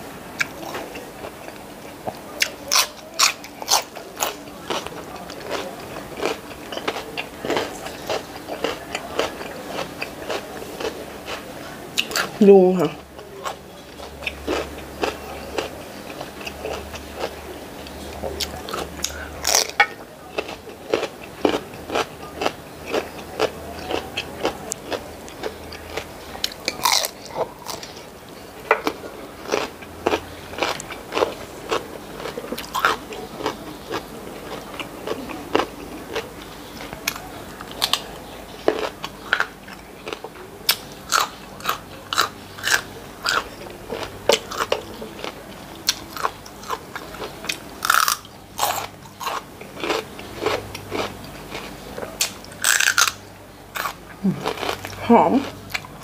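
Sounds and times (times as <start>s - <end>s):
crunching cucumber bites: 0.4s - 12.3s, 13.4s - 28.1s, 28.7s - 56.0s
person chewing food: 0.4s - 56.0s.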